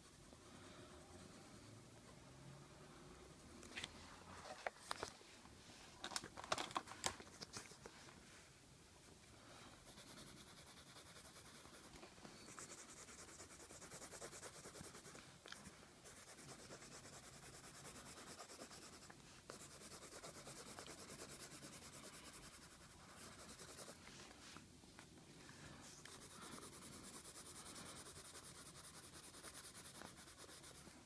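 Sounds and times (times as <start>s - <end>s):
colored pencil scratching on paper: 9.8s - 24.2s, 25.8s - 31.0s.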